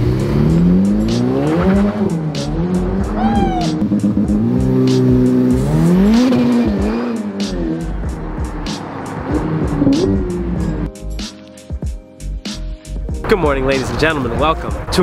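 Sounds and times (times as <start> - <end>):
car engine revving: 0.0 - 10.9.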